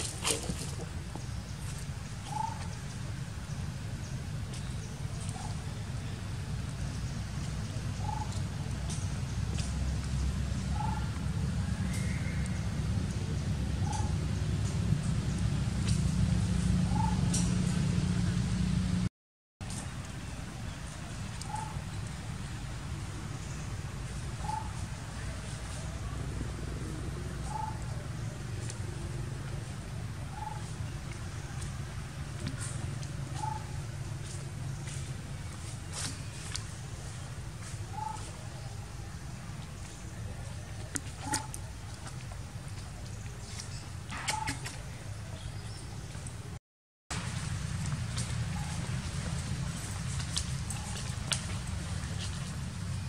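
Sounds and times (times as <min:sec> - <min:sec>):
steady low rumble: 0:00.0 - 0:45.3
bird call: 0:02.2 - 0:02.8, 0:24.4 - 0:24.8, 0:37.9 - 0:38.8, 0:43.7 - 0:45.9.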